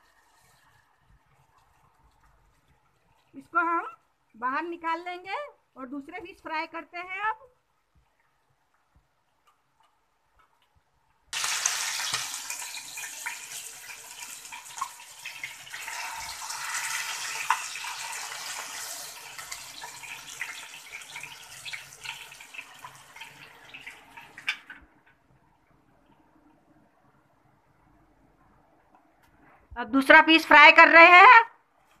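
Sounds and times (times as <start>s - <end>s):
hot oil sizzling in a pan: 11.3s - 24.6s.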